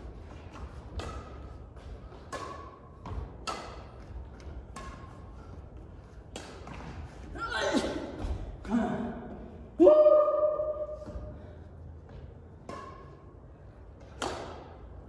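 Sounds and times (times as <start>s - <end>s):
racket hitting shuttlecock: 0.1s - 8.8s, 12.6s - 13.4s, 14.0s - 15.0s.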